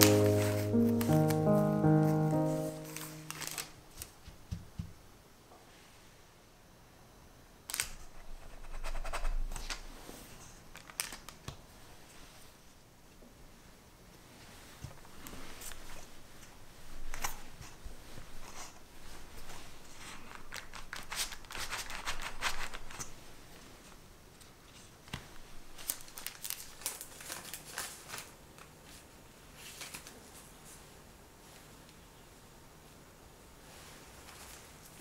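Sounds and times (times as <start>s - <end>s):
paper crinkling: 0.0s - 4.2s, 10.7s - 11.5s, 19.4s - 23.1s, 24.7s - 29.0s, 29.6s - 30.5s.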